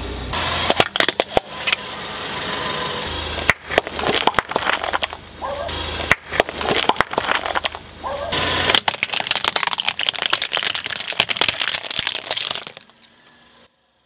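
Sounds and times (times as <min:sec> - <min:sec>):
plastic cups cracking under tyre: 0:00.7 - 0:01.8, 0:03.4 - 0:05.2, 0:06.0 - 0:07.9, 0:08.7 - 0:13.2.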